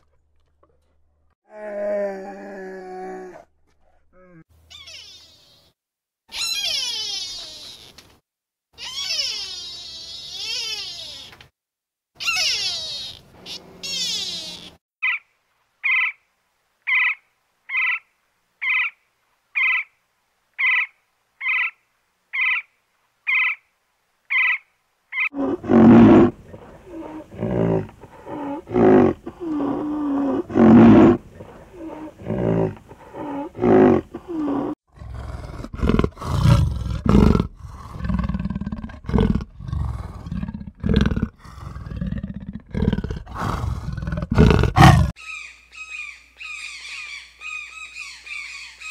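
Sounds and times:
woodpecker calling: 12.2s - 16.2s, 16.9s - 19.0s, 24.3s - 25.4s, 45.2s - 48.9s
animal roars and grunts: 25.3s - 45.2s.

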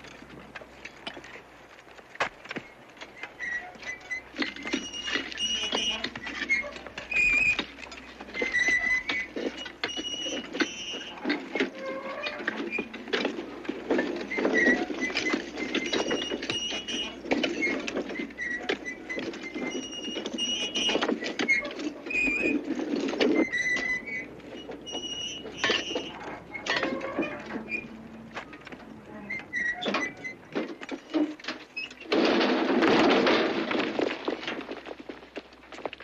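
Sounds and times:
picks and shovels striking rock: 30.6s - 36.0s.

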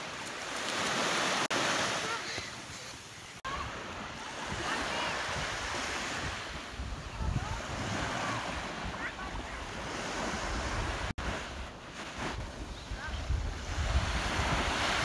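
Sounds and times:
small waves breaking on sand: 0.0s - 15.0s
wind buffeting microphone: 3.4s - 15.0s.

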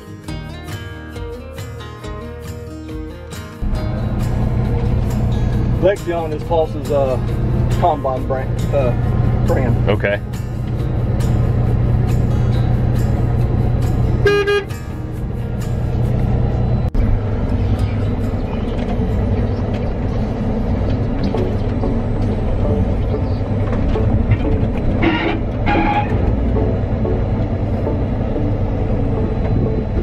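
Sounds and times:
combine engine running: 3.6s - 30.0s
short tones: 25.0s - 26.4s.

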